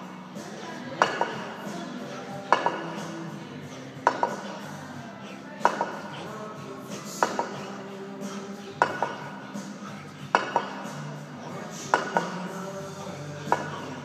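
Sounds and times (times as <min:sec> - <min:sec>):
kettlebells clanking together: 0:01.0 - 0:01.5.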